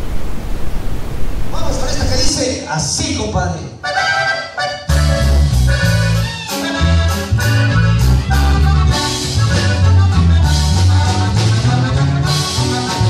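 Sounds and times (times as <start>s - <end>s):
button accordion melody: 3.8s - 13.0s
bass line: 4.0s - 13.0s
drums: 4.9s - 13.0s.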